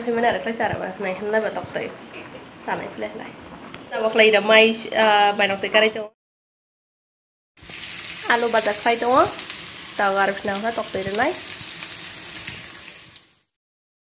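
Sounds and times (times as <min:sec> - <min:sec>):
potatoes sizzling in a pan: 0:07.6 - 0:13.6.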